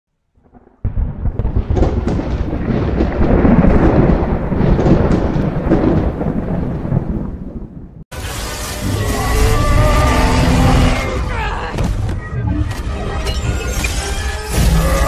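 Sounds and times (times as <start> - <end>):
thunder rumbling and crackling: 0.4 - 8.1.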